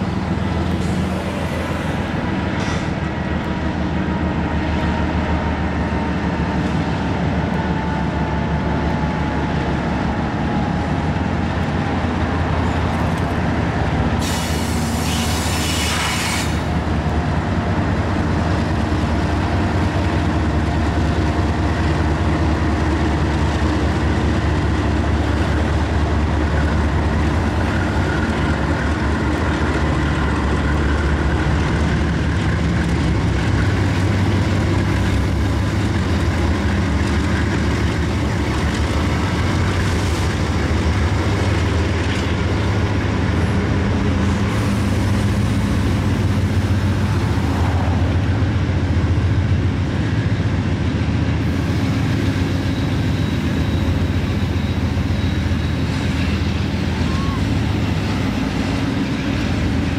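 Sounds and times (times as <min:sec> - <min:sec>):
locomotive engines rumbling: 0:00.0 - 0:59.9
loud air hiss: 0:14.2 - 0:16.7.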